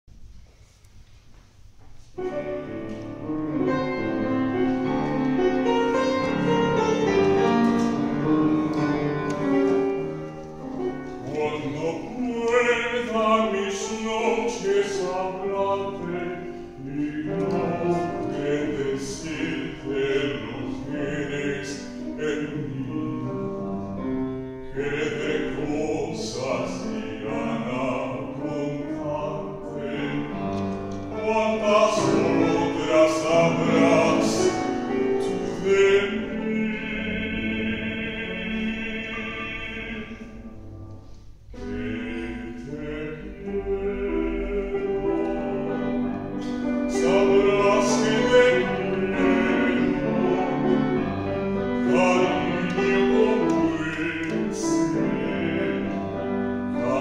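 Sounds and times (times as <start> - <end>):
piano accompaniment: 1.6 - 57.0
man singing operatically: 11.0 - 23.6, 24.6 - 40.5, 41.6 - 57.0.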